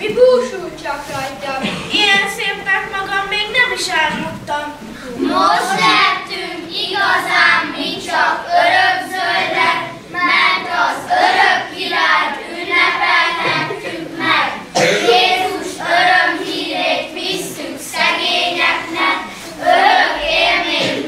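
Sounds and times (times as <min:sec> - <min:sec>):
children singing in unison: 0:05.2 - 0:21.0.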